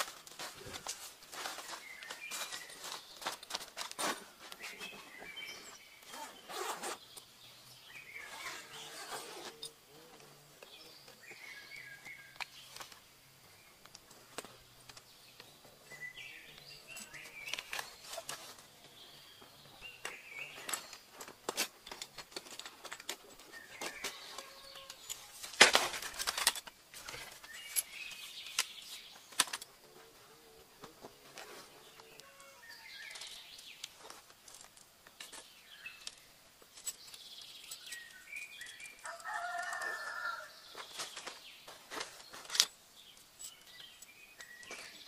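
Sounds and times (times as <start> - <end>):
fabric backpack rustling: 0.0 - 7.2
clicks and knocks of fishing gear: 20.0 - 29.8, 40.8 - 45.0.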